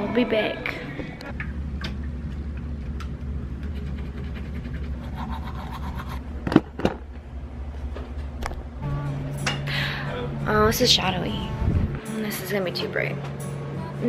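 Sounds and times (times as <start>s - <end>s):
steady low hum: 0.0s - 14.0s
toothbrush scrubbing teeth: 3.6s - 6.2s.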